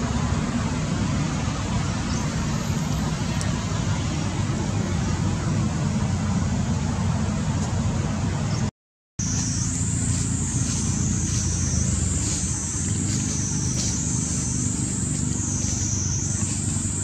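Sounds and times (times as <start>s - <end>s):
low rumbling background noise: 0.0s - 17.0s.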